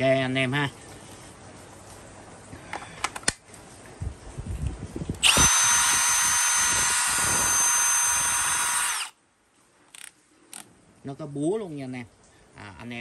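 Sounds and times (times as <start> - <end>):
cordless drill motor whine: 5.2 - 9.2.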